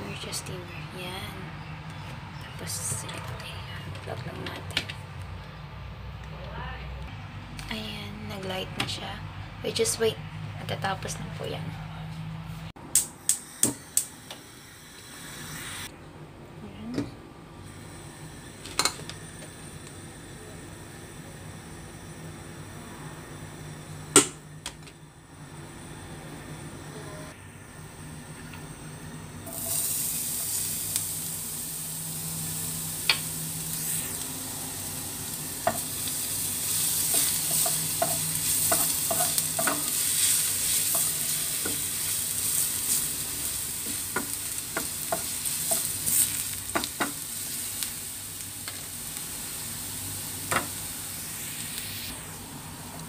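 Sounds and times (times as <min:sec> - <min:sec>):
garlic sizzling in oil: 0:29.5 - 0:52.1.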